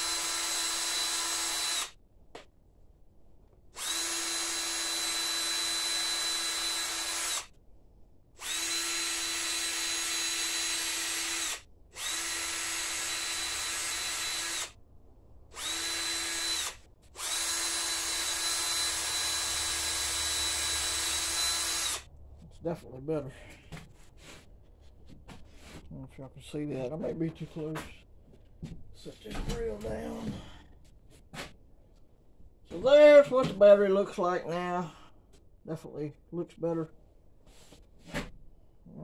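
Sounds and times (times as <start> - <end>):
cordless drill spinning wire brush: 0.0 - 2.0, 3.8 - 7.6, 8.4 - 14.8, 15.6 - 22.1.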